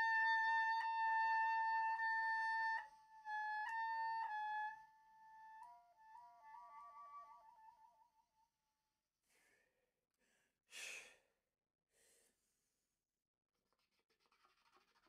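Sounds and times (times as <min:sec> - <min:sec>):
oboe playing: 0:00.0 - 0:08.4.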